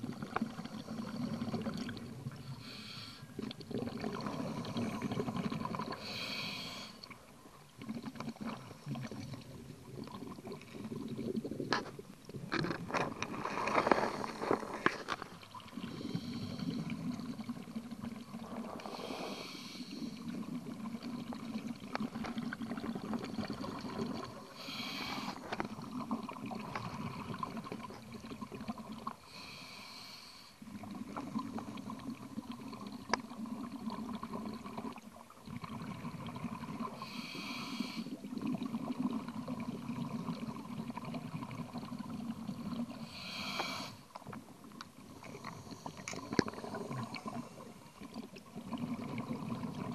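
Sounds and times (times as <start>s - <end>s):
exhaled bubbles rushing: 0.0s - 2.6s, 3.4s - 6.1s, 7.1s - 19.1s, 19.9s - 24.6s, 25.3s - 29.2s, 30.6s - 37.1s, 38.1s - 43.1s, 44.3s - 49.9s
scuba regulator inhale hiss: 2.4s - 3.4s, 6.0s - 7.0s, 15.8s - 16.9s, 18.8s - 20.2s, 24.6s - 25.5s, 29.3s - 30.6s, 36.9s - 38.2s, 43.0s - 44.1s.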